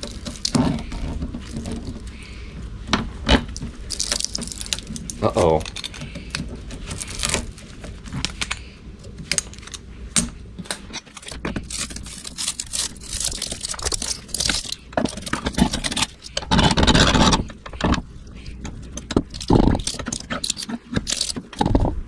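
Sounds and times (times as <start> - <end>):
tools scraping metal: 10.7 - 21.8.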